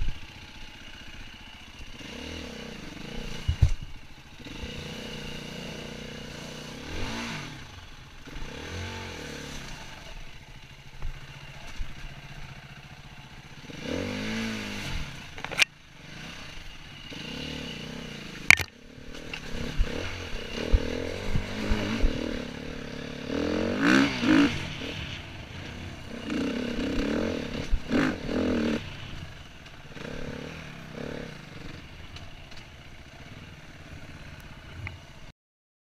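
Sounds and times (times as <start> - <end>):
dirt bike engine revving: 0.0 - 35.3
clatter and scraping over ground: 3.0 - 4.9, 9.1 - 13.4, 14.8 - 15.9, 18.4 - 23.1, 24.3 - 35.1.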